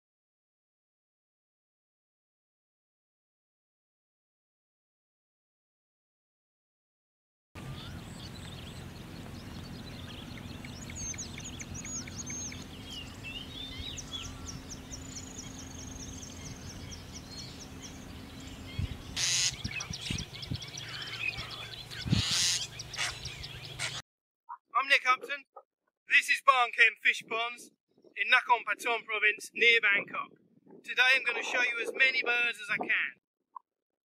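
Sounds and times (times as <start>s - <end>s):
birds chirping and trilling: 7.6s - 24.0s, 27.9s - 33.1s
steady low hum: 7.6s - 24.0s.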